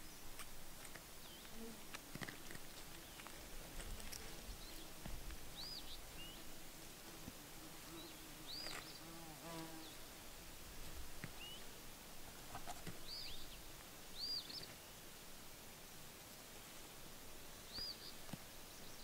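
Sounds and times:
faint outdoor background: 0.0 - 19.0
flying insect buzzing: 0.8 - 14.1
bird chirping: 4.6 - 6.5, 7.9 - 10.1, 11.4 - 11.7, 12.5 - 14.8, 17.7 - 19.0.

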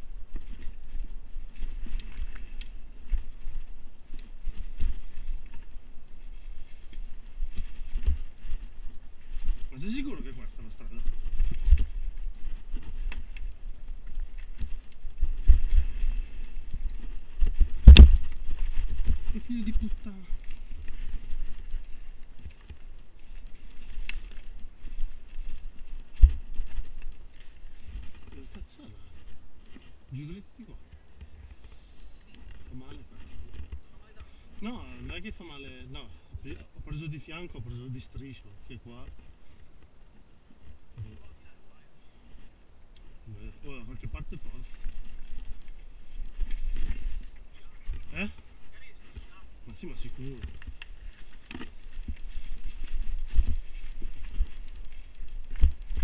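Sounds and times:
mountain bike rattling: 0.0 - 28.5, 43.9 - 56.0.

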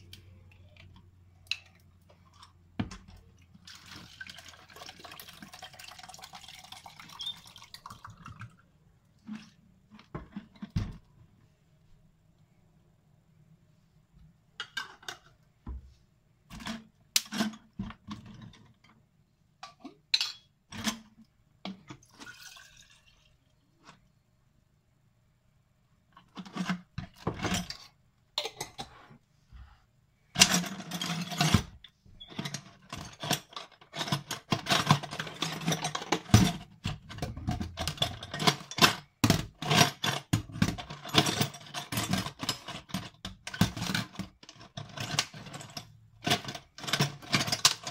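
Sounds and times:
metal bits clattering on steel sink: 19.6 - 21.0, 30.4 - 47.9.

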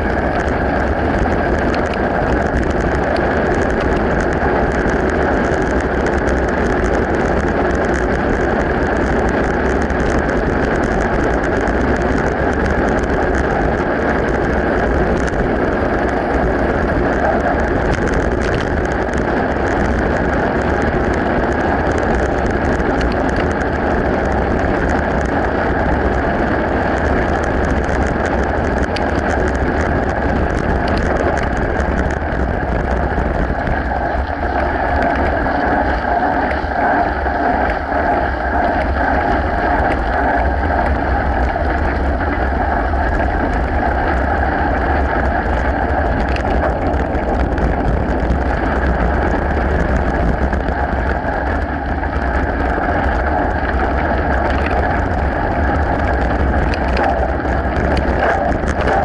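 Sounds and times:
bike clicks and rattles: 0.0 - 59.0
wind and tyre noise: 0.0 - 59.0.

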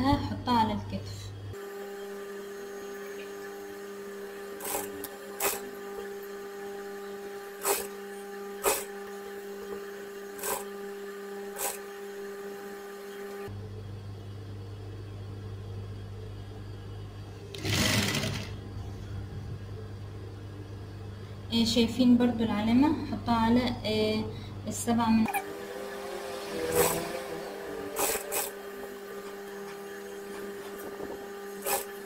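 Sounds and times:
sewing machine humming: 2.7 - 13.5, 17.5 - 18.6, 25.3 - 32.0.

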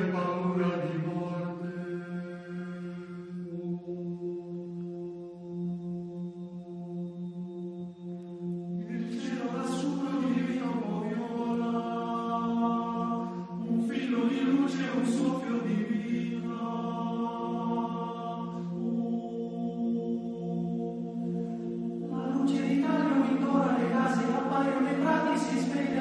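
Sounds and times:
chant-like choir: 0.0 - 26.0
low drone: 0.0 - 26.0.

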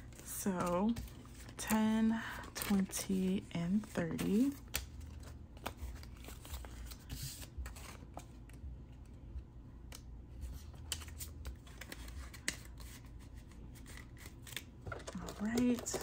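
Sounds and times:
paper rustling: 10.5 - 16.0.

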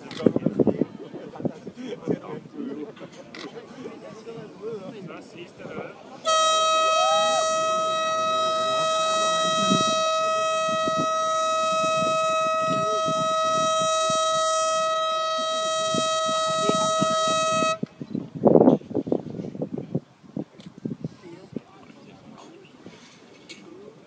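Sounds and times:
high-pitched warning horn: 6.2 - 17.9.

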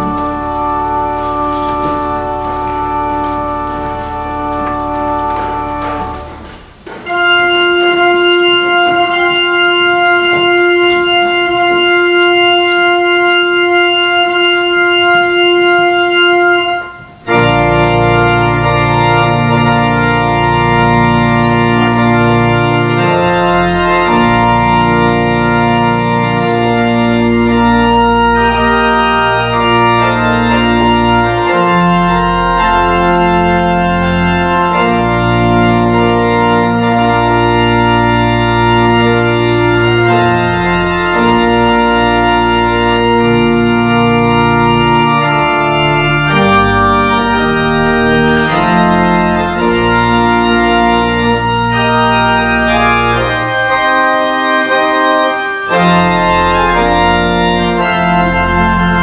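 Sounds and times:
church organ playing: 0.0 - 59.0.

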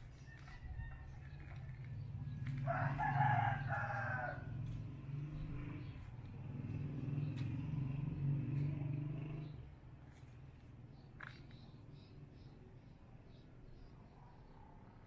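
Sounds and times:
rooster crowing: 0.2 - 1.9, 2.5 - 4.7.

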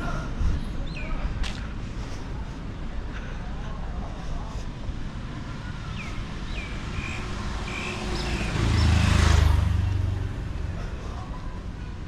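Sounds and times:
vehicle engine passing by: 5.2 - 10.8.

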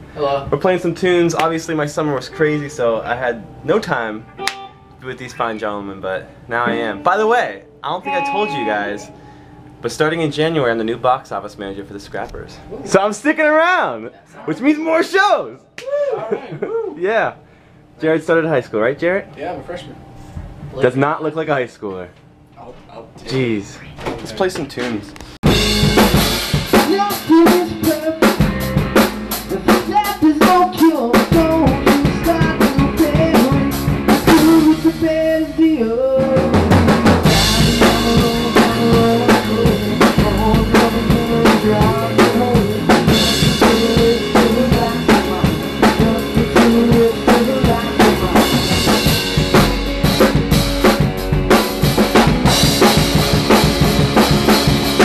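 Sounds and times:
band playing live: 8.0 - 9.1, 25.4 - 55.0
bass drum and snare hits: 25.4 - 34.7, 36.4 - 55.0.

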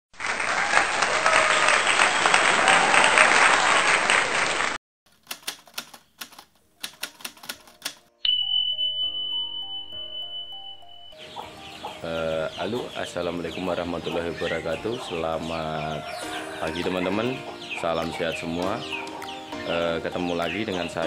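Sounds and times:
typewriter-like clicks: 5.1 - 8.1
short electronic melody: 8.1 - 12.0
steady high beep: 8.2 - 11.4.

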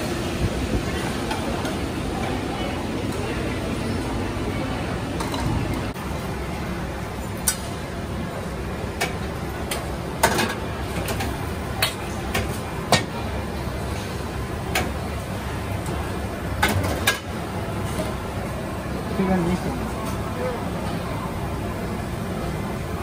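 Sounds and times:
steady rushing background noise: 0.0 - 23.0.

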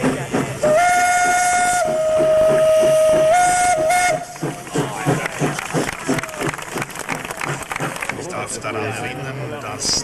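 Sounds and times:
steam locomotive whistle: 0.6 - 4.6.

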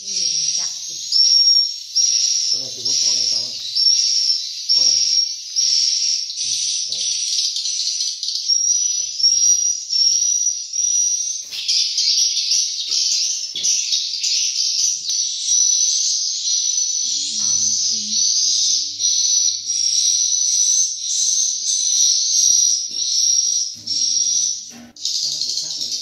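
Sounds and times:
high-pitched bird chirping from speakers: 0.0 - 26.0.

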